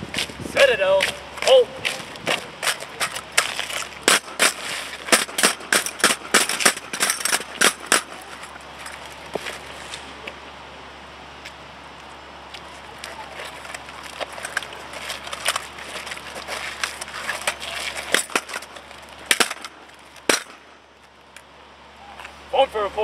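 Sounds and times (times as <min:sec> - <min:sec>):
rifles clicking and knocking: 0:01.0 - 0:09.0, 0:13.7 - 0:20.8.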